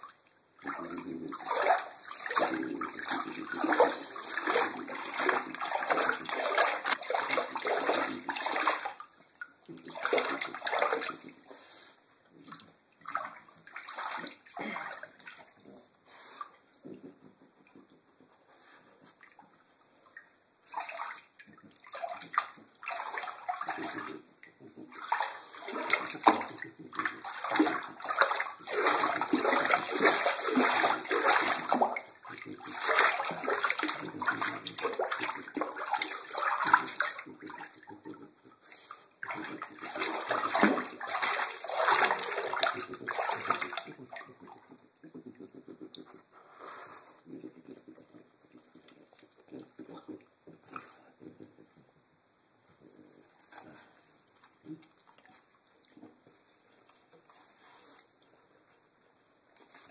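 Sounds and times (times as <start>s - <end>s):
dog splashing in bathwater: 0.6s - 9.1s, 9.7s - 11.4s, 12.5s - 15.6s, 20.7s - 38.2s, 39.2s - 44.6s.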